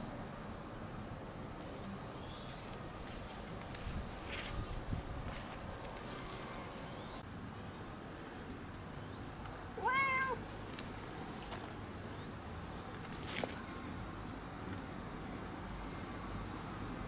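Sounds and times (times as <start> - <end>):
collar bell jingling: 1.6 - 7.0, 10.0 - 14.5
cat meowing: 9.8 - 10.4.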